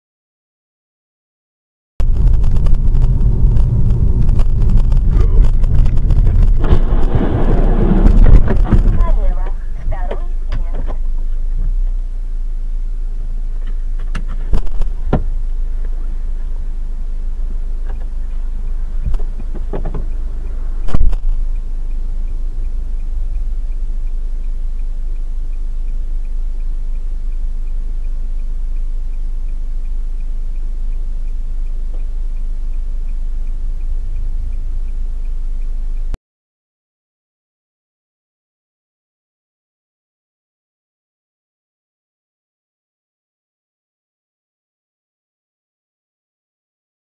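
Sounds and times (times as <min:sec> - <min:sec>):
car interior rumble: 0:02.0 - 0:36.2
faint steady ticking: 0:08.0 - 0:36.2.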